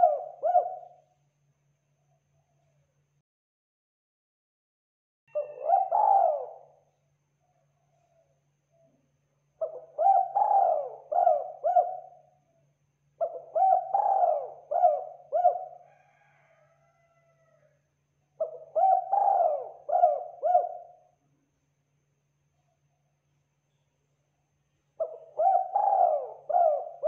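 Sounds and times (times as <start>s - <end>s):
dove cooing: 0.0s - 1.0s, 5.3s - 6.8s, 9.6s - 12.4s, 13.2s - 16.5s, 18.4s - 21.0s, 25.0s - 27.0s.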